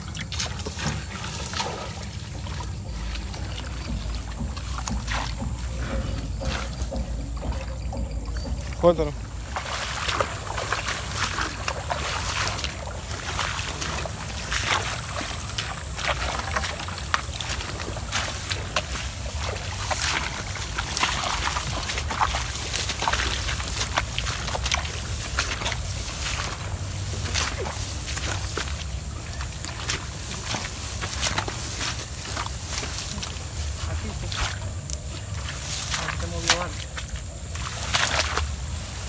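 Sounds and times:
low rumble: 0:00.0 - 0:36.2
footsteps through tall grass: 0:00.0 - 0:39.0
grass swishing and rustling: 0:09.2 - 0:39.0.

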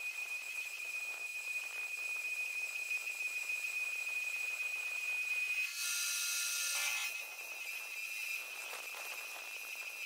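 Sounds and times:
metal lathe cutting steel: 0:05.4 - 0:10.0.

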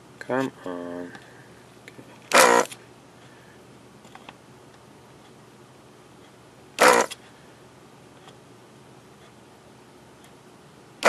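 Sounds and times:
desoldering vacuum pump buzzing: 0:02.3 - 0:02.8, 0:06.8 - 0:07.2.

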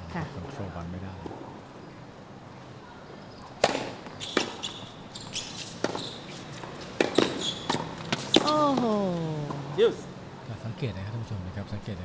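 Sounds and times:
tennis ball bouncing: 0:03.5 - 0:09.8
tennis racket hitting ball: 0:03.6 - 0:09.6.

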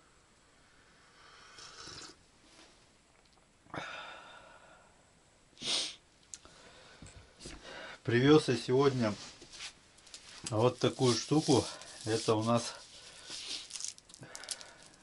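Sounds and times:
man sipping hot tea: 0:01.5 - 0:02.2
sharp sniff: 0:05.6 - 0:06.0
man breathing out heavily: 0:14.2 - 0:15.0.

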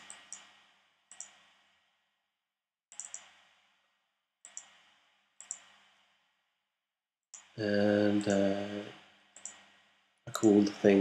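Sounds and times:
computer mouse clicks: 0:01.1 - 0:01.4, 0:02.9 - 0:03.3, 0:05.4 - 0:05.7, 0:09.4 - 0:09.6.

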